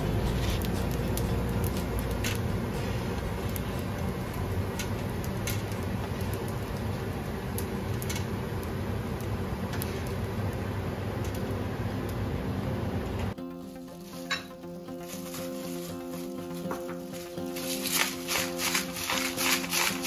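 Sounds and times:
patties frying in a pan: 0:00.0 - 0:13.3, 0:17.5 - 0:20.0
steady low hum: 0:00.0 - 0:20.0.

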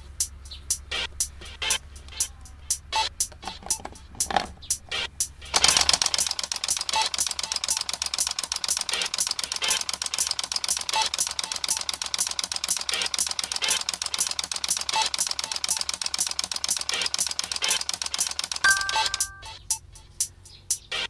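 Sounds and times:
flip clock flaps clicking: 0:03.3 - 0:19.4.

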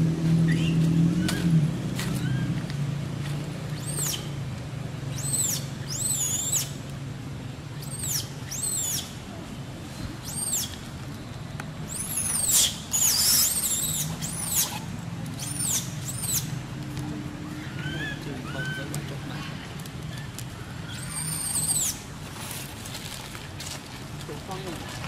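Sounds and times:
baby macaque screaming: 0:02.2 - 0:02.6, 0:03.8 - 0:04.2, 0:05.1 - 0:06.7, 0:07.8 - 0:09.1, 0:10.2 - 0:10.7, 0:11.9 - 0:14.8, 0:15.4 - 0:16.5, 0:17.4 - 0:19.6, 0:20.8 - 0:22.0.

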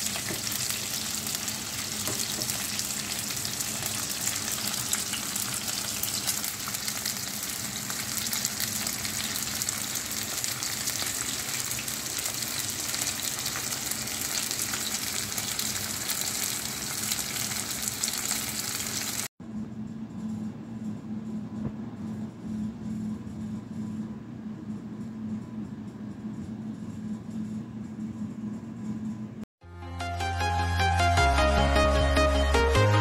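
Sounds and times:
fish frying in hot oil: 0:00.0 - 0:19.3.

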